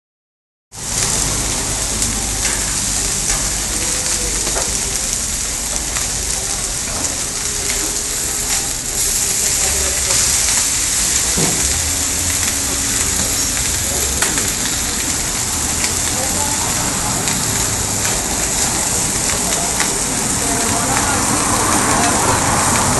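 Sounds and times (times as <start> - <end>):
food sizzling on a griddle: 0.7 - 22.9.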